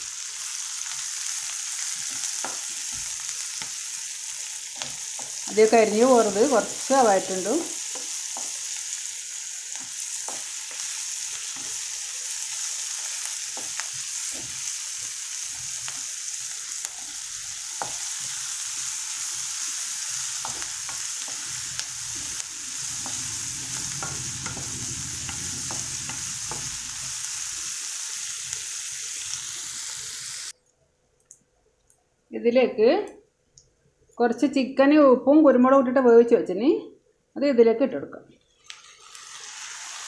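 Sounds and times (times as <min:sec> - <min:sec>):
onions sizzling in hot oil: 0:00.0 - 0:30.5, 0:38.7 - 0:40.0
wooden spatula scraping pan: 0:20.2 - 0:27.1.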